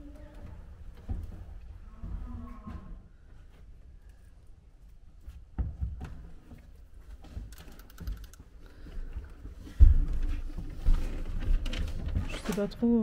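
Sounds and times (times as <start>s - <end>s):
footsteps on wooden floor: 9.4s - 12.6s.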